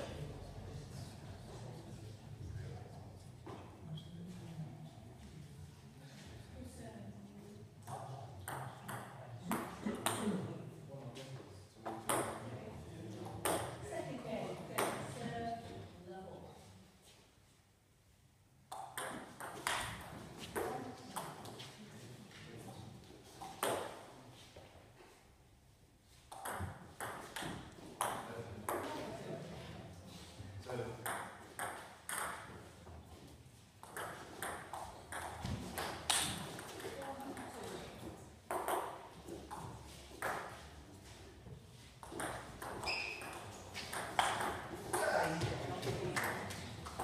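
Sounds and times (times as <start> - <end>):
table tennis ball pinging: 26.3 - 28.9, 31.0 - 32.6, 33.8 - 37.5, 38.5 - 39.0, 42.0 - 45.1
short squeak: 42.8 - 43.4.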